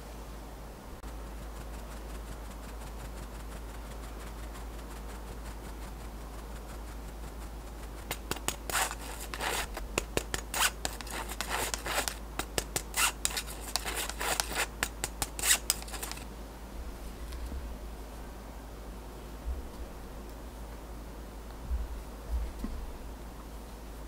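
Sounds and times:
metal sieve rasping: 1.0 - 16.2.

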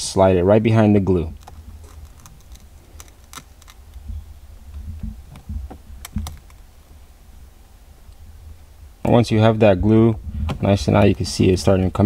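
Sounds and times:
metal pick clicking and scraping plastic: 1.3 - 4.1, 4.9 - 6.6.

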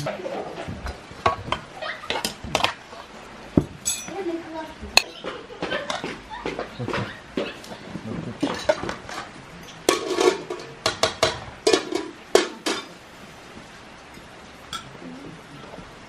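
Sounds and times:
metal cutlery clinking on plates: 3.8 - 4.2, 8.4 - 13.0.

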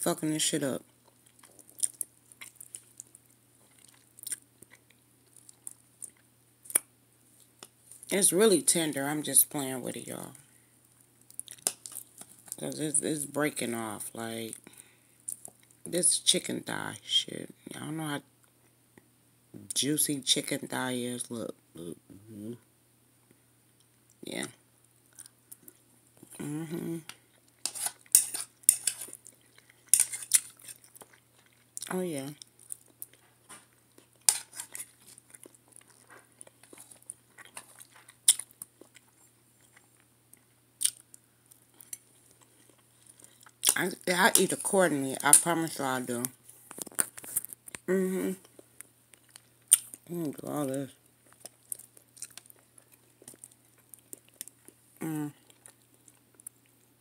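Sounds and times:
person chewing food: 0.9 - 8.1, 10.9 - 12.6, 25.1 - 44.4, 46.4 - 50.1, 51.0 - 57.0
fork scraping ceramic plate: 27.6 - 29.1, 34.3 - 34.9.

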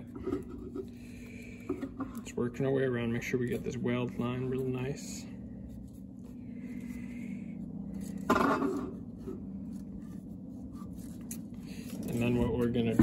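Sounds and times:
steady low hum: 0.0 - 13.0
fingers rubbing tape on pipe: 9.2 - 13.0.

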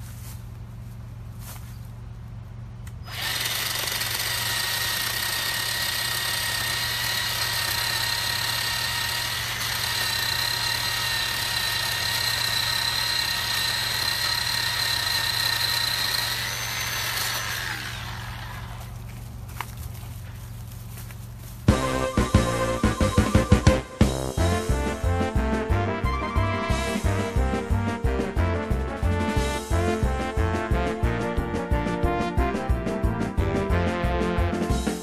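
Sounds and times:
electric chainsaw cutting wood: 3.0 - 19.3.

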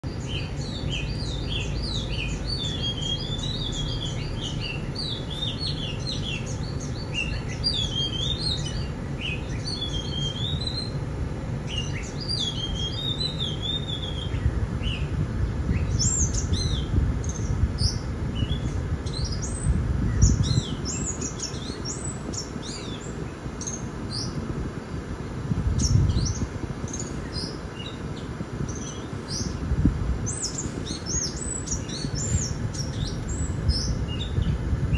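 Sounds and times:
birds chirping and calling: 0.0 - 25.0, 25.7 - 34.9.

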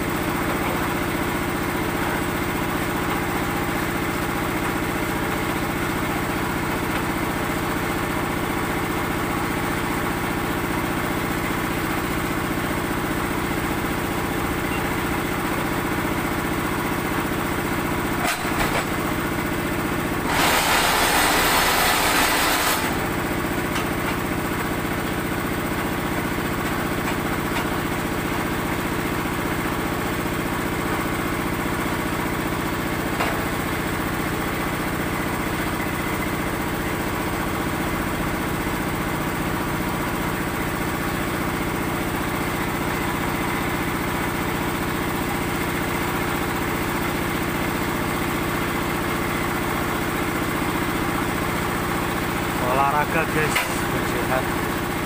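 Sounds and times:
small engine running: 0.0 - 55.0
loud harsh machine noise: 19.8 - 27.4, 52.5 - 55.0.

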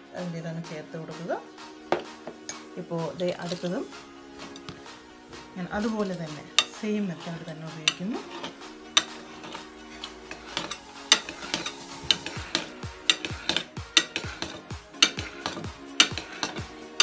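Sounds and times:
background music with steady beat: 0.0 - 17.0
knife scraping ceramic plate: 7.4 - 17.0.

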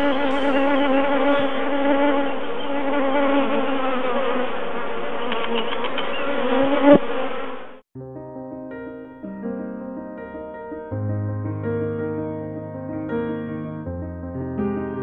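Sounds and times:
bees buzzing: 0.0 - 7.8.

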